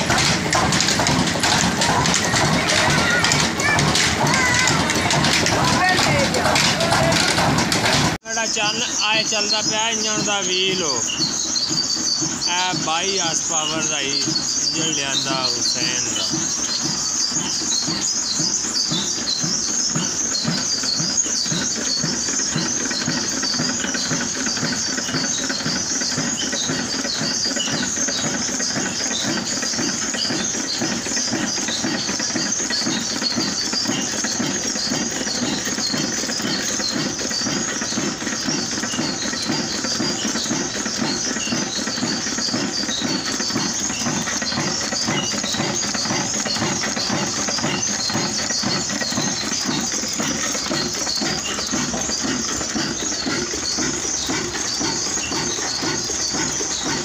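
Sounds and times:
high-pitched chatter: 0.0 - 18.5
diesel engine running: 0.0 - 57.0.

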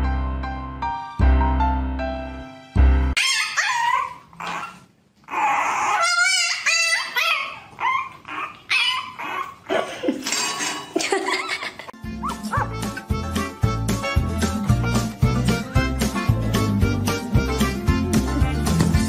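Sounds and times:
puppy whining and yelping: 3.2 - 9.9, 12.2 - 13.1.

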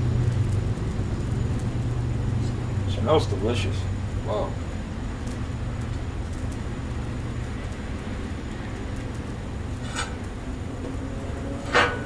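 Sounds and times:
steady low rumble: 0.0 - 12.0
metal spatula striking griddle: 11.7 - 12.0.

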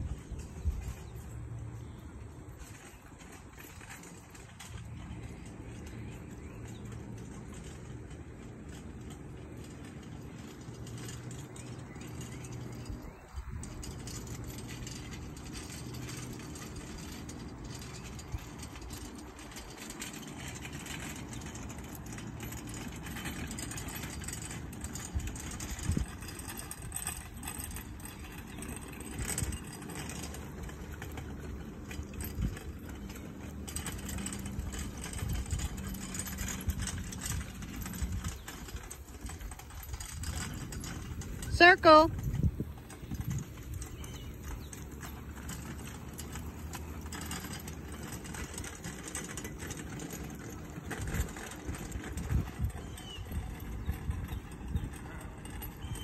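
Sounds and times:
carriage wheels rolling over grass: 0.0 - 56.0
harness jingling and rattling: 0.0 - 56.0.

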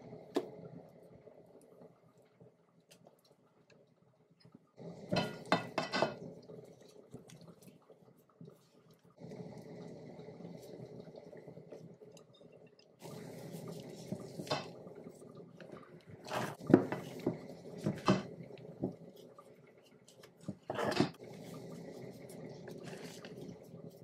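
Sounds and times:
batter squelching: 6.4 - 24.0.

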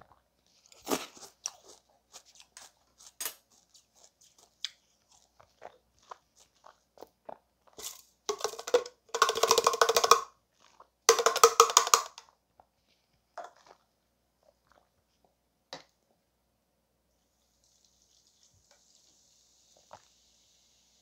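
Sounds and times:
plastic cup knocking on glass: 8.3 - 10.3, 11.1 - 12.3.

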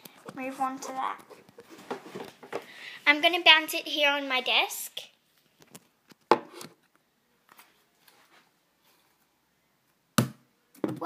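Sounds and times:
putty ball thumping on desk: 10.2 - 11.0.

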